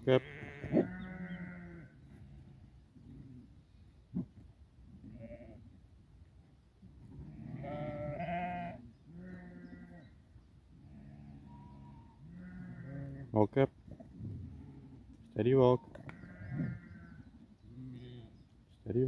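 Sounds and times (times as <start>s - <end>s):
sheep bleating: 0.0s - 1.9s, 7.2s - 10.0s, 10.9s - 13.3s, 16.1s - 18.3s.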